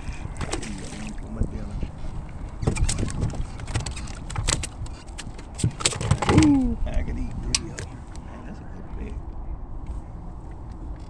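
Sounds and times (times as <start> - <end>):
fish splashing at the surface: 0.4 - 1.2.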